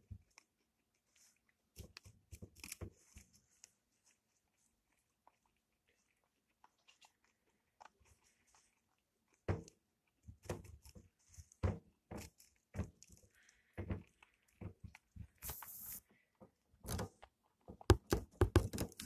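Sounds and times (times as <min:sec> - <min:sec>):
guinea pigs nibbling: 0:00.0 - 0:19.0
crunches and knocks: 0:09.3 - 0:15.4, 0:16.4 - 0:19.0.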